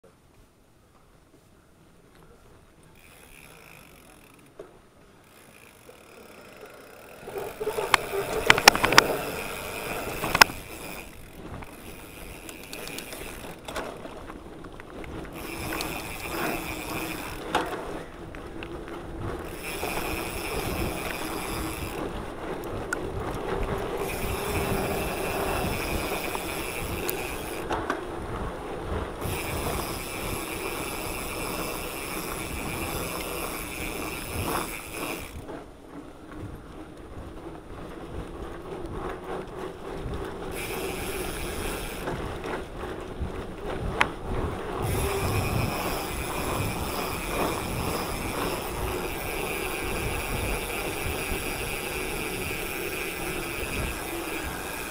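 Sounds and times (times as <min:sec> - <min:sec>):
bike tyre noise on dirt: 0:00.0 - 0:54.9
freewheel ratchet buzzing: 0:03.0 - 0:04.5, 0:05.2 - 0:13.7, 0:15.3 - 0:17.6, 0:19.4 - 0:22.1, 0:24.0 - 0:27.8, 0:29.2 - 0:35.5, 0:40.5 - 0:42.1, 0:44.8 - 0:54.9
bike frame and chain clattering: 0:03.0 - 0:54.9.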